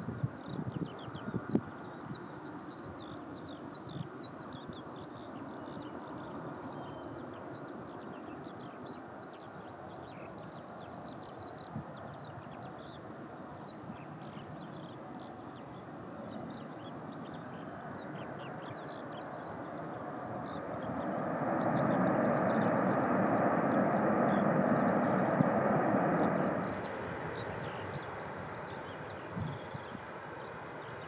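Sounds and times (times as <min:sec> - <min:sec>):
jet engines roaring: 0:12.7 - 0:31.0.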